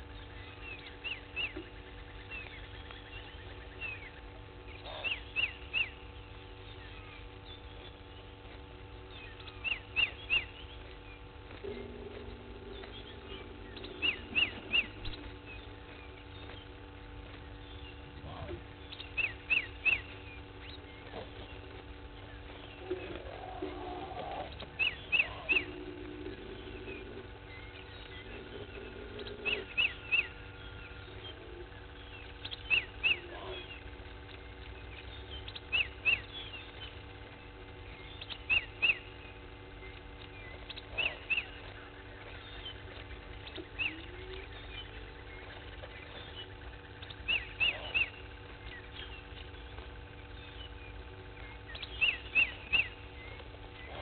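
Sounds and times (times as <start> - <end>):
steady low hum: 0.0 - 54.0
animal high-pitched calls: 22.8 - 27.2, 40.6 - 44.7.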